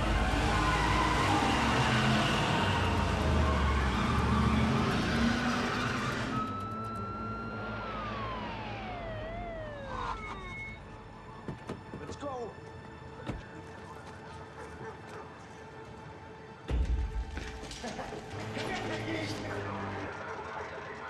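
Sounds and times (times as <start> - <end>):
car engine running hard: 0.0 - 10.0
high tone sliding down in pitch: 5.8 - 11.0.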